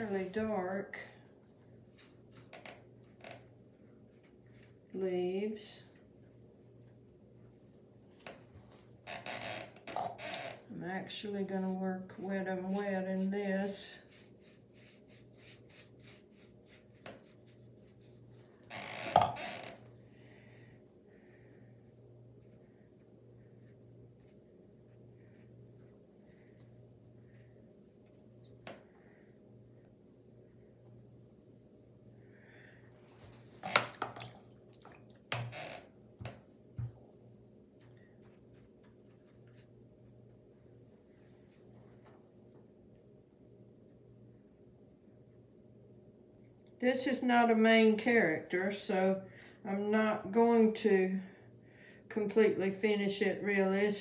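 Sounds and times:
brush strokes: 3.7s - 5.0s, 11.3s - 18.6s, 22.3s - 28.6s
brush swish: 12.5s - 18.5s.

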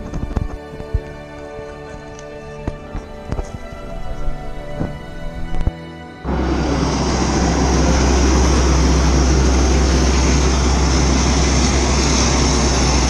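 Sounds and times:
propeller plane engine drone: 0.0s - 13.0s
high whine: 2.1s - 13.0s.

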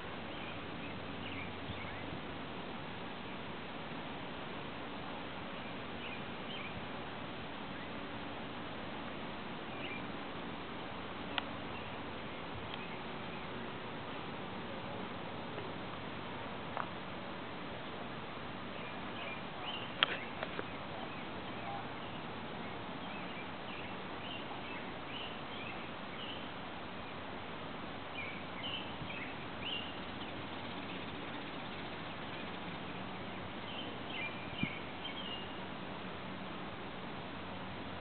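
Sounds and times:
steady outdoor hiss: 0.0s - 38.0s
faint bird chirps: 0.2s - 2.2s, 5.5s - 6.8s, 9.7s - 10.1s, 11.7s - 13.6s, 18.7s - 27.2s, 28.1s - 35.6s.

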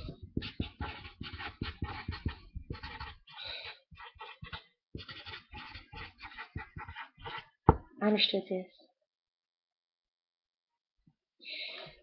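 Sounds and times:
paper scratching and rustling: 0.0s - 7.6s.

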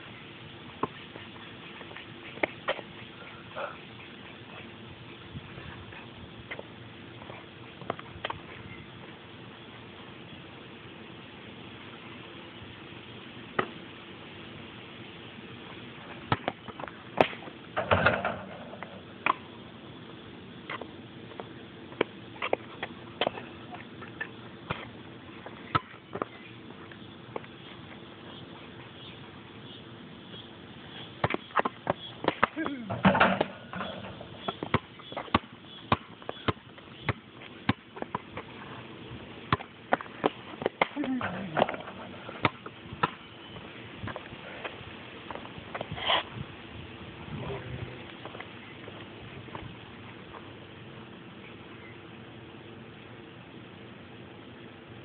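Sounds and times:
basketball thumps: 16.2s - 19.4s, 25.7s - 26.3s, 31.2s - 38.5s, 39.5s - 43.2s
ball clattering on rim and backboard: 16.3s - 19.4s, 31.2s - 38.5s, 39.5s - 43.2s.

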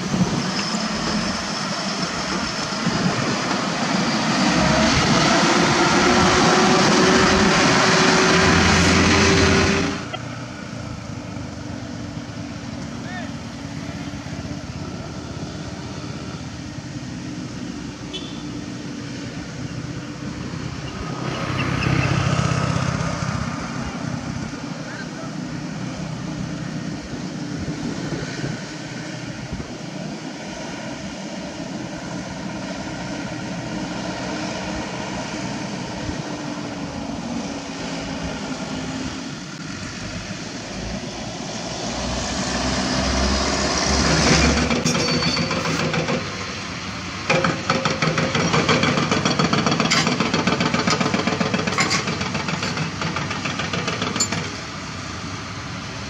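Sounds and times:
diesel trucks running: 0.0s - 56.0s
excavator metallic clatter: 44.0s - 54.8s.

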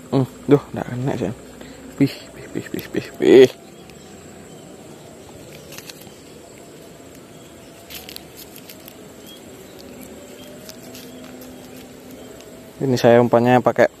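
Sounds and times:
high insect buzz: 0.0s - 14.0s
fishing line clicks and rustles: 5.3s - 12.6s.

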